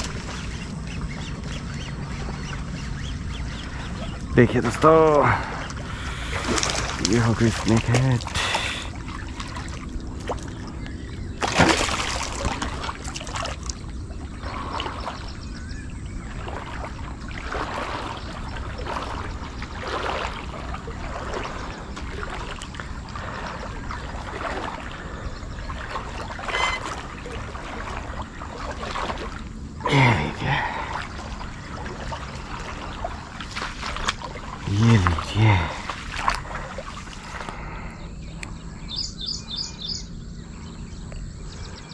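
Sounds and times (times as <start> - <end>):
fish splashing in water: 5.3 - 15.3, 16.2 - 38.0.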